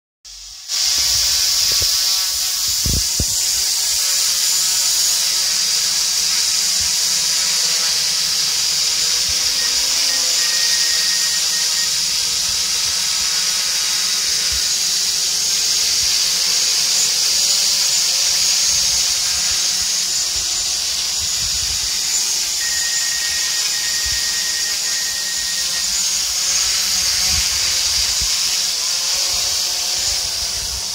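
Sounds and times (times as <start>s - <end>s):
drone propellers whining: 0.3s - 30.9s.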